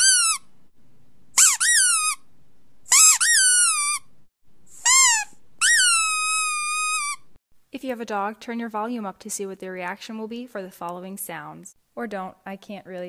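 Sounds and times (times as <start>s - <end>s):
squeaky dog toy squeaking: 0.0s - 0.5s, 1.4s - 2.3s, 2.9s - 4.1s, 4.8s - 7.3s.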